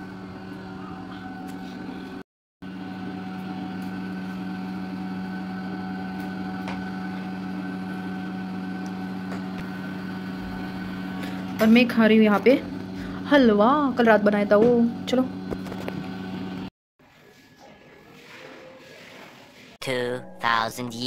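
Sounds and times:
steady mechanical hum: 0.0 - 16.7.

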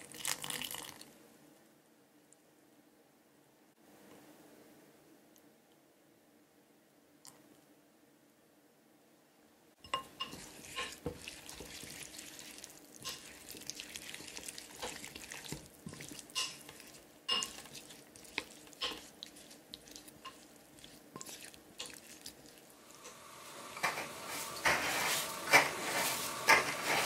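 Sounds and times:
moist squelching of stirred tomatoes: 9.8 - 27.0.

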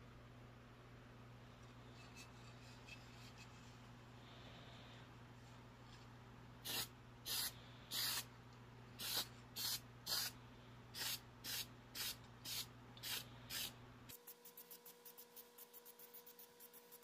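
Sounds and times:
spray-paint can hissing: 6.6 - 8.2, 9.0 - 10.4, 11.0 - 13.7.

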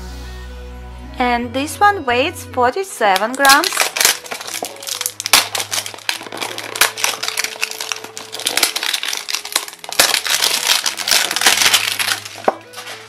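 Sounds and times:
cellophane crinkling: 3.1 - 13.0.

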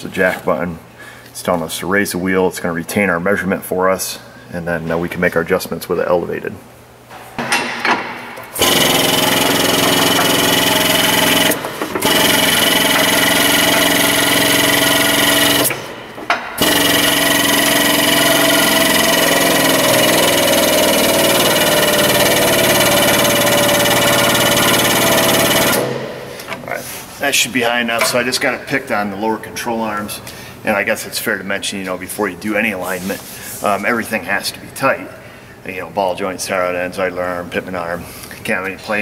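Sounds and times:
powered jack running: 7.4 - 26.6.

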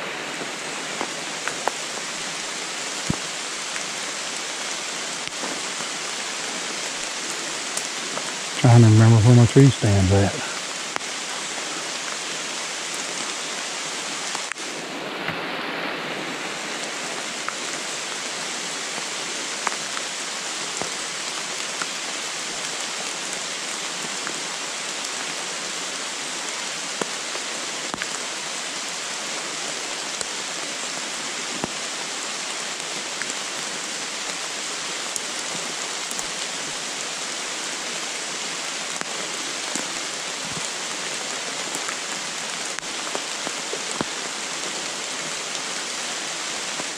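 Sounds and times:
rain on leaves: 0.0 - 46.9.

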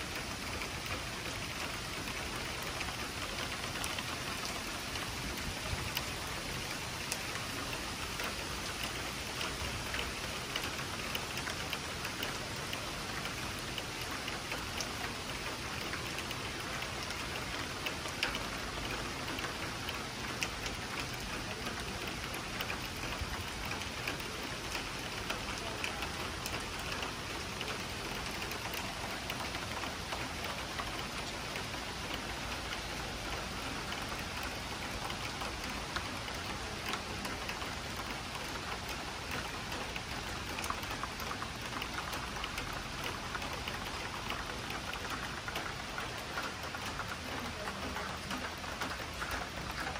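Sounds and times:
rain hiss: 0.0 - 49.9
raindrop ticks: 0.0 - 49.9.

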